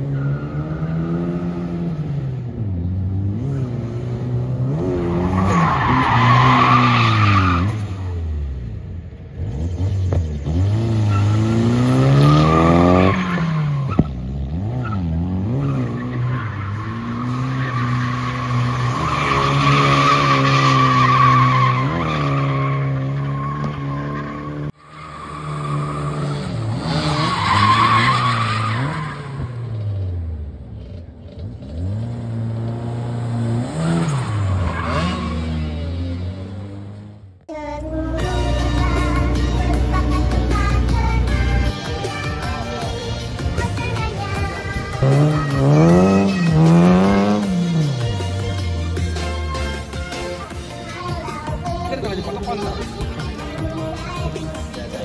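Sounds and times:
turbocharged car engine revving: 0:09.3 - 0:50.5.

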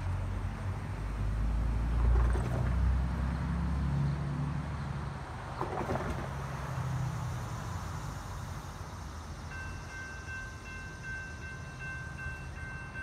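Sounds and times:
road vehicle rumbling past: 0:00.0 - 0:09.3
railroad warning signal ringing: 0:09.1 - 0:13.0.

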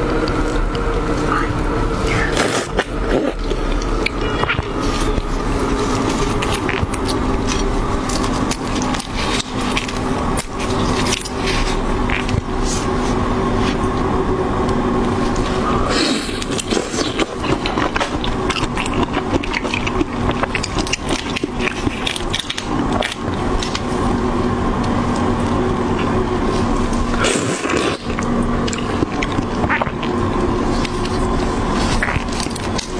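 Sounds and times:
shrimp shells crackling and squelching: 0:16.4 - 0:24.0.

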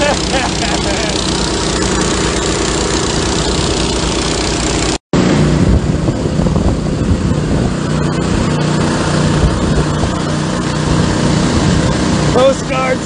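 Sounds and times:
pump engine hum: 0:00.0 - 0:13.0
rushing water: 0:06.2 - 0:13.0.

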